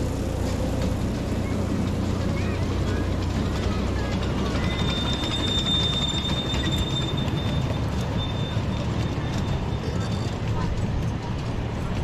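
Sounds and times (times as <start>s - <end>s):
train wheels rumbling: 0.0s - 12.0s
thin high squeal: 4.6s - 10.3s.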